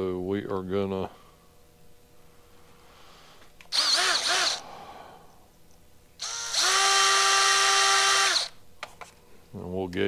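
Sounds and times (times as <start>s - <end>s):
cordless drill whining: 3.7s - 4.6s, 6.2s - 8.6s.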